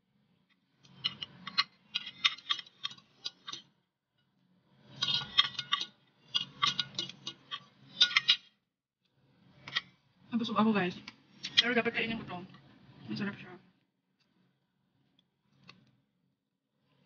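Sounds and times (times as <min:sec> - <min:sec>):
cutlery clicking on a plate: 0:05.0 - 0:08.4.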